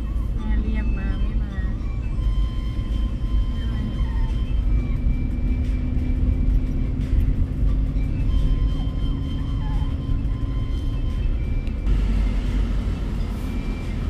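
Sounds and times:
car cabin road rumble: 0.0s - 14.0s.

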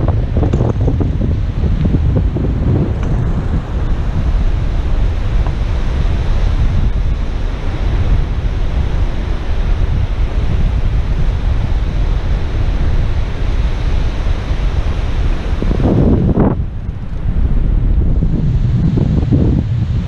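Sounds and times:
surf washing on beach: 0.0s - 20.0s
wind buffeting microphone: 0.0s - 20.0s.

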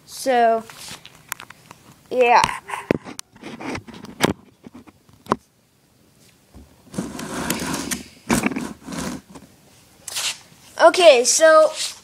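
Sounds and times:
phone rubbing and scraping: 2.5s - 5.0s, 6.9s - 9.5s.

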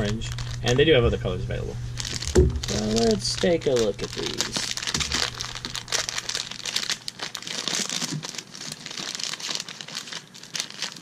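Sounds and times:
cotton gloves rustling on plastic: 0.0s - 1.0s, 1.9s - 11.0s.

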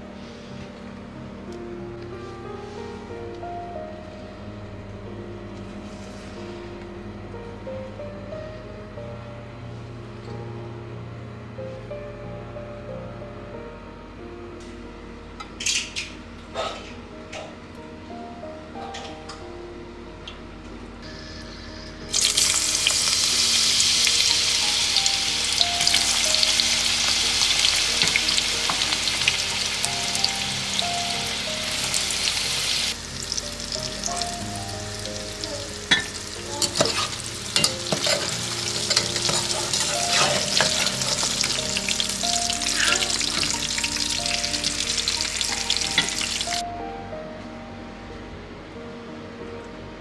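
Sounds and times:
food sizzling in hot oil: 22.0s - 46.6s
spoon scraping metal pot: 36.7s - 41.3s.

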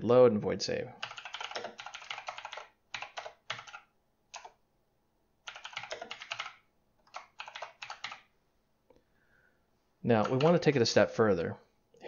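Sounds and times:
typing on computer keyboard: 1.0s - 4.6s, 5.4s - 8.3s, 10.2s - 10.6s.

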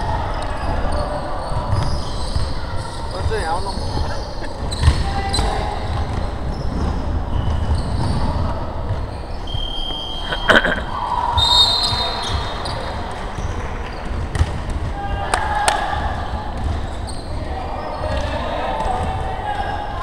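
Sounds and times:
players' voices echoing: 0.0s - 20.0s
shoe squeaks: 0.3s - 14.2s, 16.8s - 18.2s.

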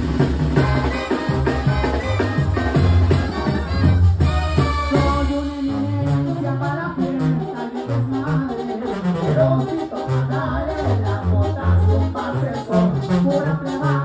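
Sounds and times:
brass band playing: 0.0s - 14.0s
man singing: 5.0s - 14.0s.

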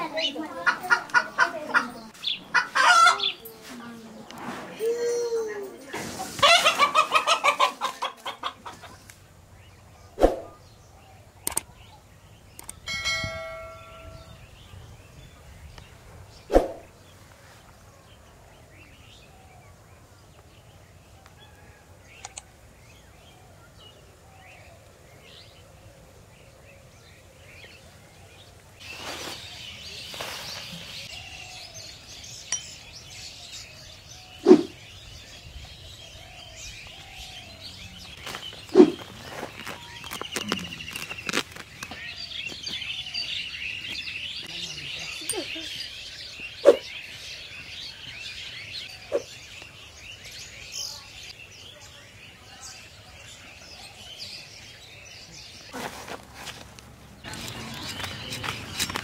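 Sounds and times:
chickens squawking: 0.0s - 3.5s, 6.3s - 9.1s
chickens clucking: 0.0s - 4.5s, 6.0s - 9.3s
rustling noise: 3.4s - 5.2s, 5.8s - 7.2s, 28.8s - 31.4s, 38.0s - 42.8s, 55.6s - 59.0s.

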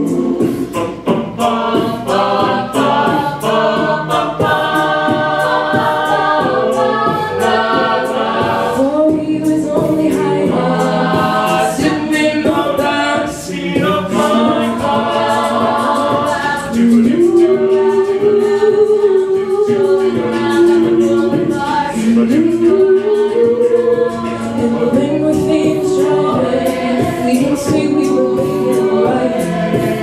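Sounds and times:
group singing in harmony: 0.0s - 30.0s
vocal percussion beat: 0.0s - 30.0s
woman singing lead: 16.4s - 30.0s.

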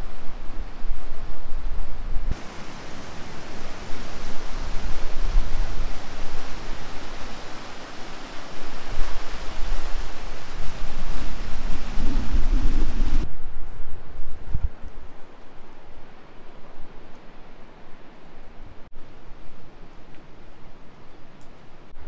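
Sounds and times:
wind buffeting microphone: 0.0s - 15.3s
rushing hiss: 2.3s - 13.3s.

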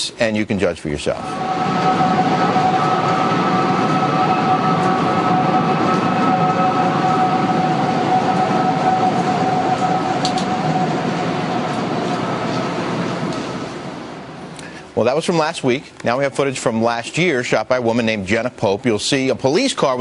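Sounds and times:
two-toned wind whistle: 1.2s - 14.5s
rushing wind: 1.2s - 14.6s.

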